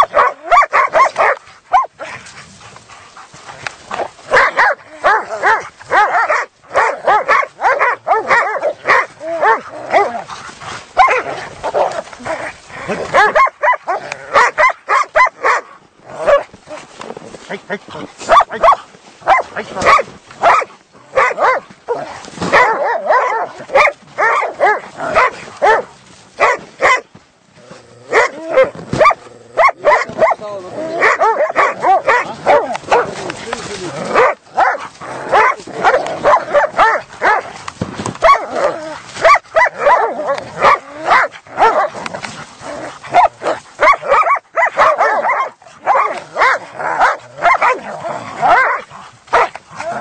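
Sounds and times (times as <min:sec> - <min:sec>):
dogs barking and yelping: 0:00.0 - 0:16.8, 0:18.2 - 0:27.1, 0:28.0 - 0:50.0.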